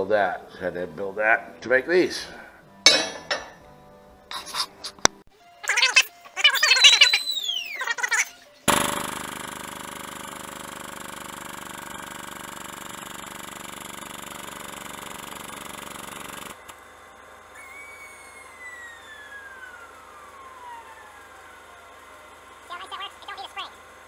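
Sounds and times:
shop machinery droning: 8.6 - 24.0
whine falling in pitch: 17.5 - 23.8.

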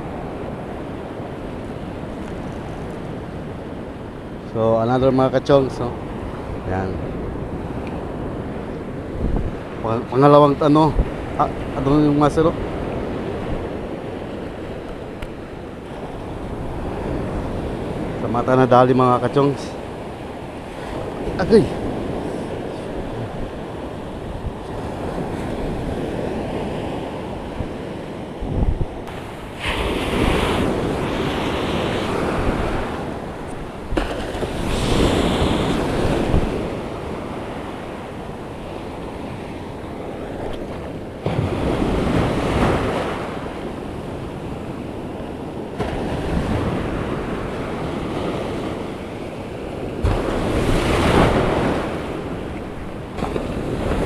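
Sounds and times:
ocean waves breaking: 0.0 - 54.0
wind buffeting microphone: 0.0 - 54.0.

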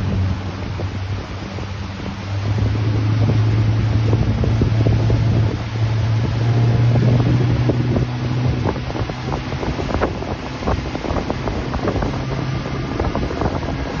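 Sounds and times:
motorboat engine humming: 0.0 - 14.0
wake rushing and splashing: 0.0 - 14.0
wind buffeting microphone: 0.0 - 14.0.

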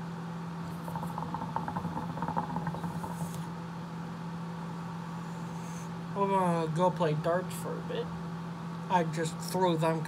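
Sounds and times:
steady low hum: 0.0 - 10.0
hookah water bubbling: 0.6 - 3.7.

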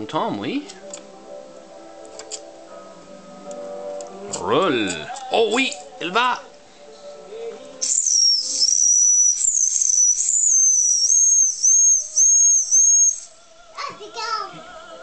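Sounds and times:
shrill steam whistle: 7.8 - 13.4.

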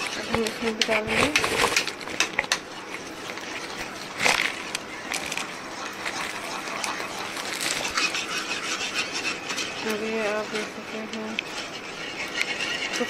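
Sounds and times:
crunching rustle: 0.0 - 10.0
rustling and scraping: 0.0 - 13.0.

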